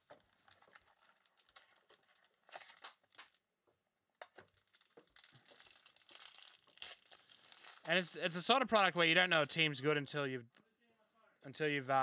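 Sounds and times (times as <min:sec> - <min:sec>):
foil pack rustling and crinkling: 0:00.0 - 0:03.4, 0:04.4 - 0:08.0.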